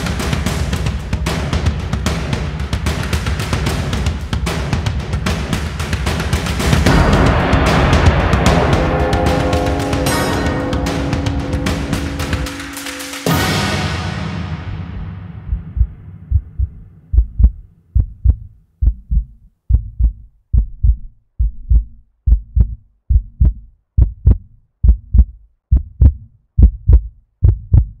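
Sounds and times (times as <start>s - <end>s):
music chord: 6.9s - 16.2s
heartbeat thumps: 15.0s - 28.0s.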